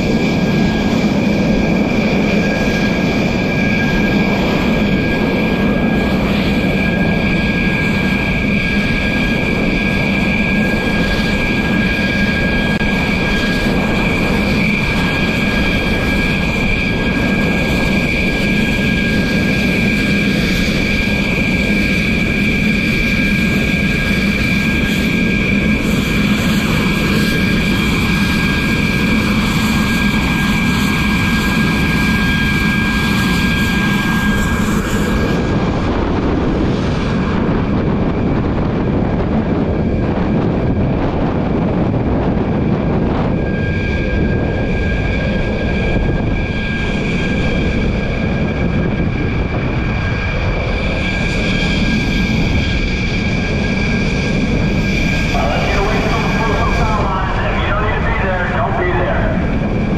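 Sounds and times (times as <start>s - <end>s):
jet engines whining: 0.0s - 59.9s.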